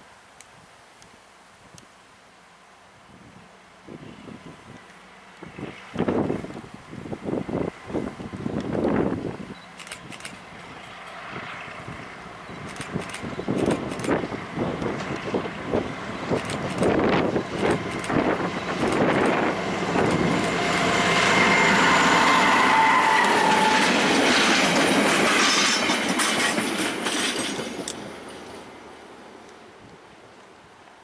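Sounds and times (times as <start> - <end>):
train engine passing: 3.9 - 31.0
train wheel squeal: 20.0 - 28.6
wheels clattering over rail joints: 23.2 - 28.7.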